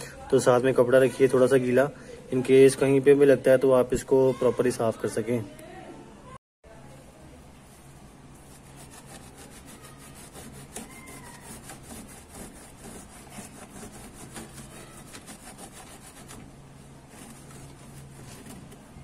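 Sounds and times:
cloth rubbing on plastic: 0:07.6 - 0:19.0.

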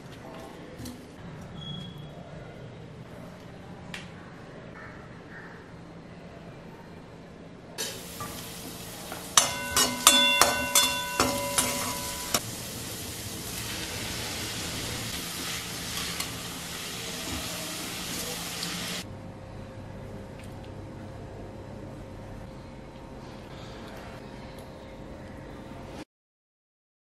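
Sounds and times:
metal spatula clanking on pan: 0:07.8 - 0:12.4
cabbage sizzling in a pan: 0:07.8 - 0:19.0.

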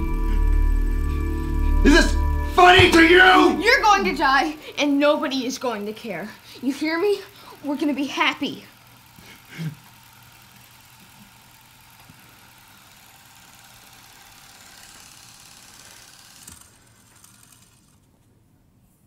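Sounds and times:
mechanical whirring hum: 0:00.0 - 0:18.8.

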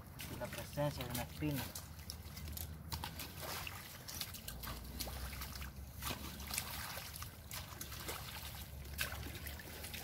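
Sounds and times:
muddy water splashing and sloshing: 0:00.0 - 0:10.0.

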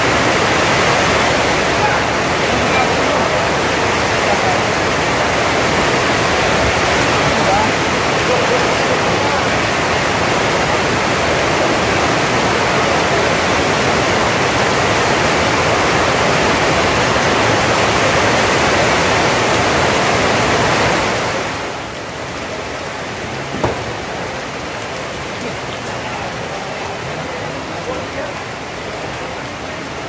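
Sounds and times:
rain on roof: 0:00.0 - 0:30.0.

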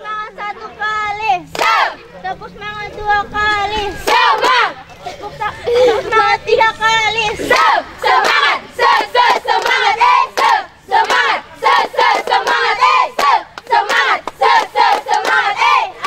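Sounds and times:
girls chanting a cheer: 0:00.0 - 0:02.1, 0:03.0 - 0:04.8, 0:05.8 - 0:16.0
hands clapping: 0:09.0 - 0:11.3, 0:12.1 - 0:15.7.

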